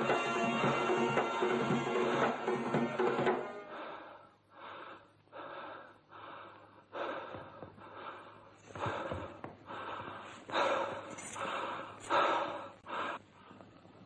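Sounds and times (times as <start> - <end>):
drum and accordion folk music: 0.0 - 3.7.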